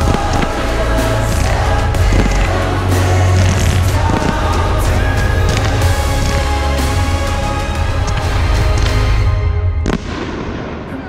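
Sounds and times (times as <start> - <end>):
choir voices: 0.0 - 9.9
heavy bass music: 0.0 - 10.5.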